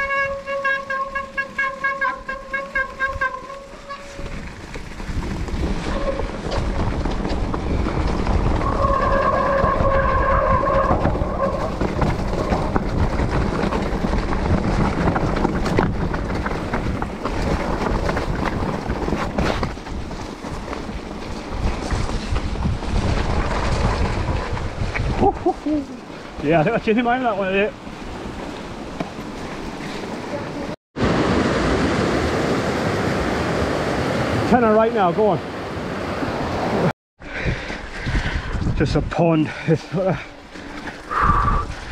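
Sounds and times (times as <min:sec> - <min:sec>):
tyres rumbling over rocky trail: 0:00.0 - 0:30.8, 0:37.2 - 0:41.9
bike disc brakes squealing: 0:00.4 - 0:04.4, 0:08.6 - 0:11.8
wind on microphone: 0:02.2 - 0:26.4, 0:35.7 - 0:39.2, 0:41.0 - 0:41.9.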